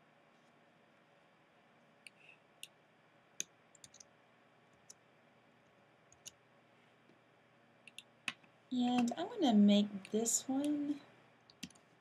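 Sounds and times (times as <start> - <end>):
keyboard and mouse clicks: 3.4 - 4.1.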